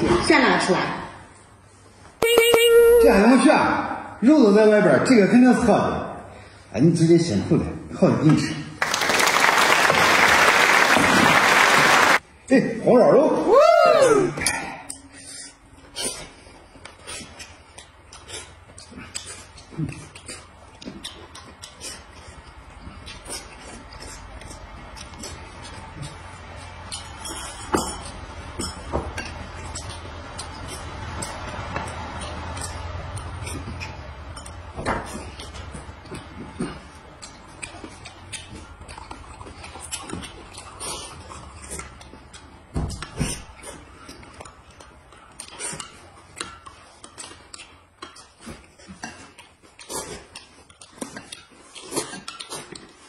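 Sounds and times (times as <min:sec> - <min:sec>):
chewing: 0:14.5 - 0:53.0.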